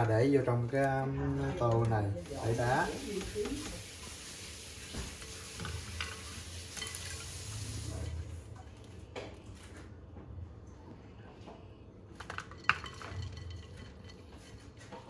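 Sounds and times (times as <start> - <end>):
simmering water hiss: 2.2 - 8.3.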